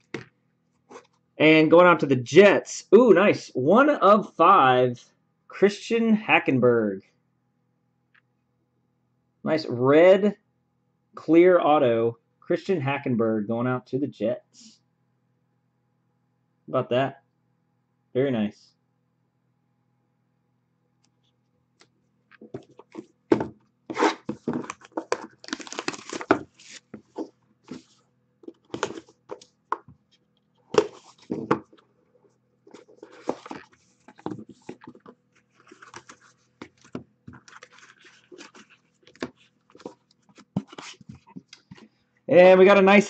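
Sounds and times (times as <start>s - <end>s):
cardboard tearing: 23.9s - 27.9s
foam insert rustling: 23.9s - 29.6s, 32.7s - 41.8s.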